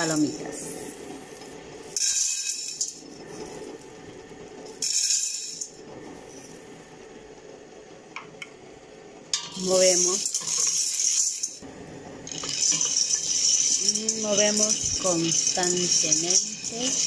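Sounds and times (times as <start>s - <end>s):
popcorn kernels rattling in metal pot: 1.8s - 3.8s, 4.7s - 5.8s, 9.4s - 17.0s.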